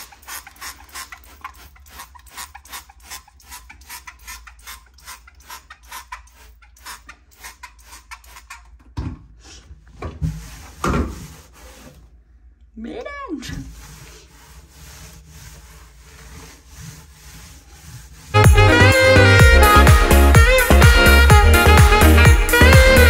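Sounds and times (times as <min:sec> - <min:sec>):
heavier knocks and rubs: 0:09.0 - 0:12.0
rapid scrubbing of wet surface: 0:10.2 - 0:12.0, 0:13.5 - 0:18.4.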